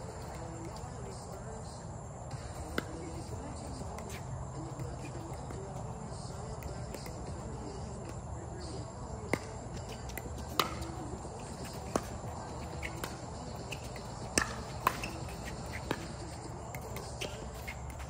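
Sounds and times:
low background hum: 0.0s - 18.0s
paddles hitting plastic ball: 2.6s - 8.2s, 9.2s - 18.0s.

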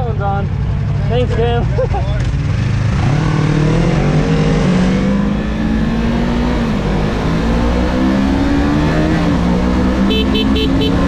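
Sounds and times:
motorcycle engine running: 10.0s - 11.0s.

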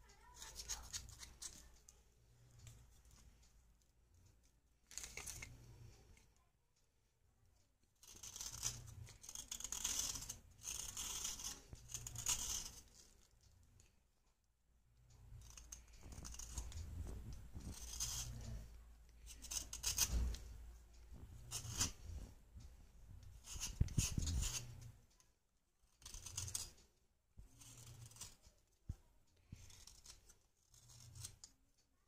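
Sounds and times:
knife scraping clay: 0.2s - 3.2s, 4.9s - 6.3s, 8.0s - 13.9s, 15.1s - 22.4s, 23.1s - 25.2s, 25.8s - 31.6s.

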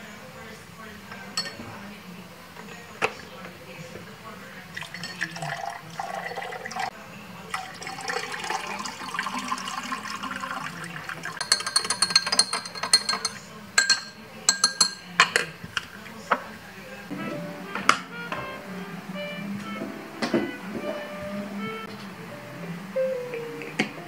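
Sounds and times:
water pouring into glass: 4.7s - 6.9s, 7.5s - 12.0s
spoon clinking against glass: 4.8s - 6.8s, 11.4s - 15.4s.

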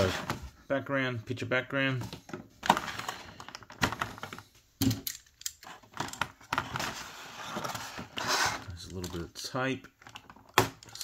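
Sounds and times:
packaging clicks and knocks: 2.1s - 7.0s.

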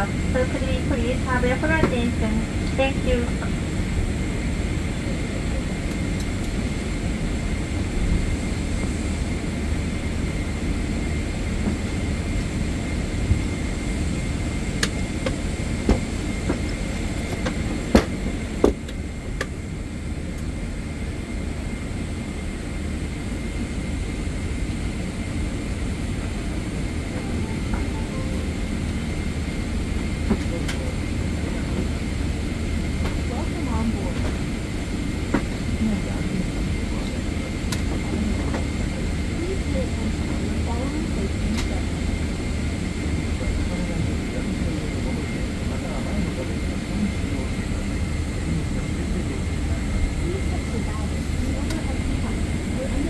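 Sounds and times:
airliner cabin low rumble: 0.0s - 53.0s
thin high whine: 26.7s - 30.1s.

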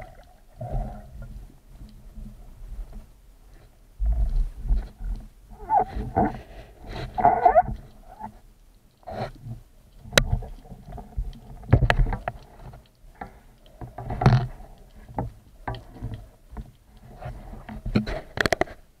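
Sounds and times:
underwater handling clicks and knocks: 9.9s - 18.8s.

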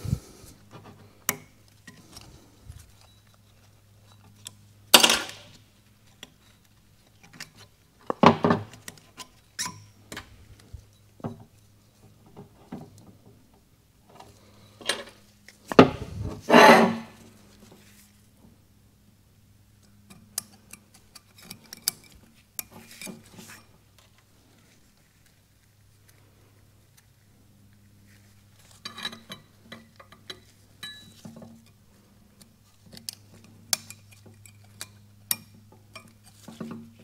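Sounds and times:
faint steady hum: 0.0s - 37.0s
metal scrapes and clatters: 16.0s - 17.3s
light clicks and clinks of small parts: 19.8s - 24.3s, 28.6s - 37.0s.

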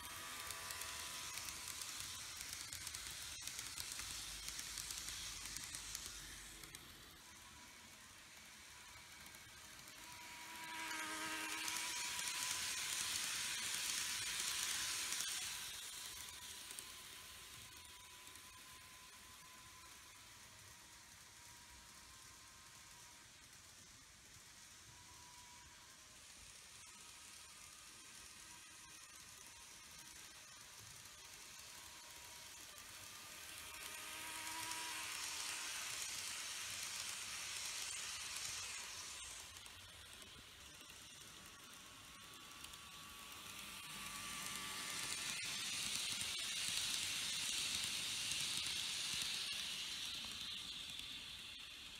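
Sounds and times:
model train motor buzz: 0.0s - 51.9s
wheels hissing on rail: 0.0s - 51.9s.

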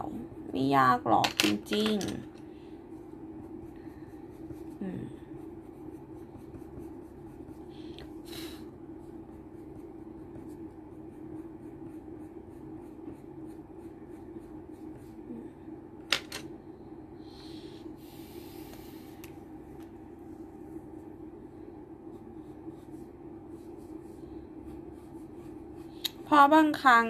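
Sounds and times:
steady low hum: 0.0s - 27.0s
pencil scratching on paper: 3.0s - 8.2s, 8.9s - 15.2s, 22.0s - 26.3s.

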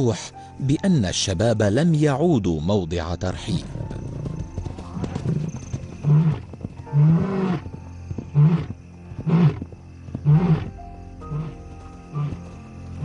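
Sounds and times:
lion roaring: 8.3s - 9.6s, 10.2s - 10.7s.

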